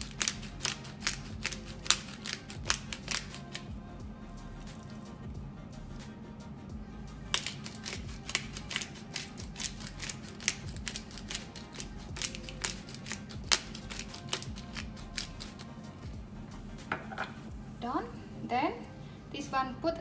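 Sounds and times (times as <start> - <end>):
pepper grinder cracking peppercorns: 0.0 - 3.7, 7.3 - 15.7.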